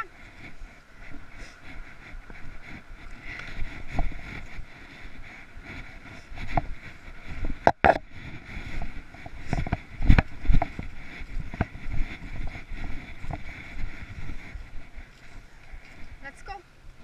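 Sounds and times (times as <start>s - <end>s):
wind rumbling on microphone: 0.0s - 17.0s
camera jostling: 7.6s - 8.1s.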